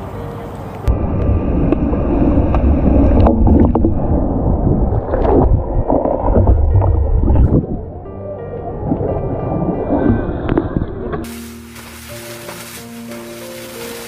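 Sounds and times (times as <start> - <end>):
churning water rumble: 0.8 - 14.0
water sloshing and splashing: 9.0 - 14.0.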